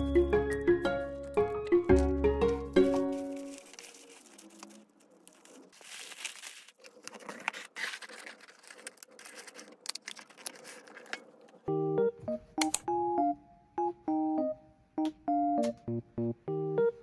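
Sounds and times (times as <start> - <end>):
packaging crinkling and rustling: 1.2 - 11.6.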